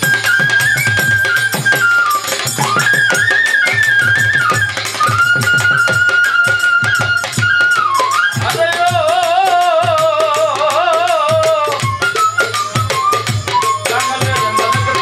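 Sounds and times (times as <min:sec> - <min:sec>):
quick steady drum beat: 0:12.6 - 0:15.0.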